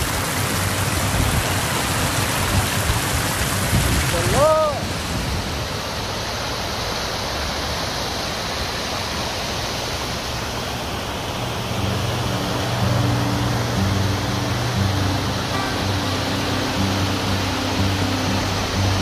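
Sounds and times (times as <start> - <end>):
floodwater rushing: 0.0 - 19.0
low steady tones: 11.8 - 19.0.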